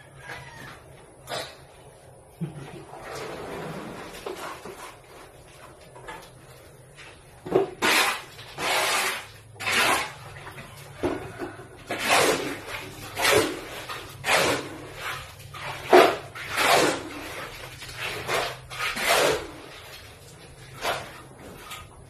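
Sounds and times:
metal tool scraping metal basin: 7.7s - 11.0s, 11.8s - 22.0s.

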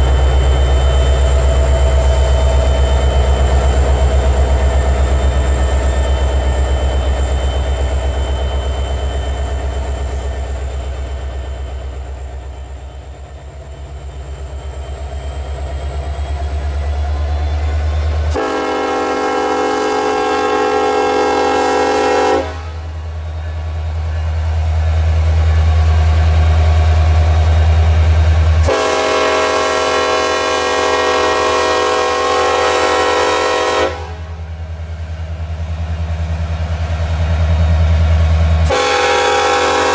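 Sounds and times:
locomotive engines rumbling: 0.0s - 39.9s
locomotive air horn blasts: 18.3s - 22.9s, 28.6s - 34.4s, 38.6s - 39.9s.

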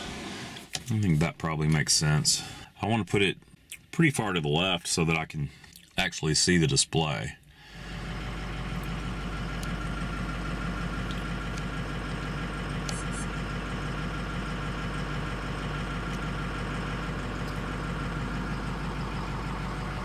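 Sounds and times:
diesel engine idling: 7.6s - 20.0s.

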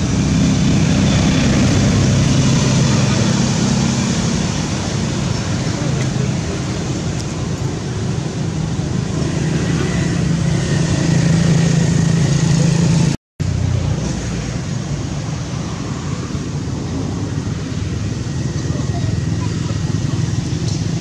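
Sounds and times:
road traffic rumble: 0.0s - 21.0s.

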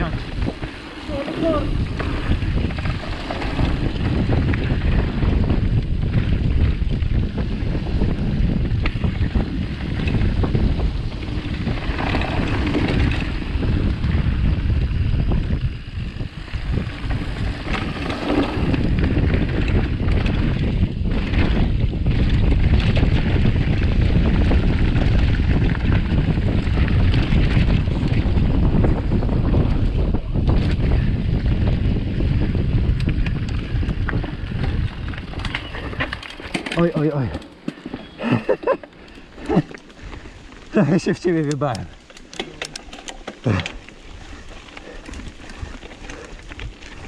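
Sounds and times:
bike rattling over bumps: 0.0s - 47.0s
bike tyres rumbling: 0.0s - 47.0s
wind rushing over microphone: 0.0s - 47.0s.

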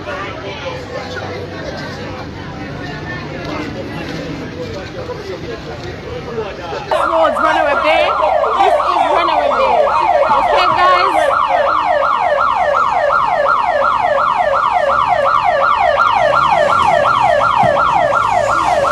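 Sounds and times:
electronic siren wailing: 6.9s - 18.9s.

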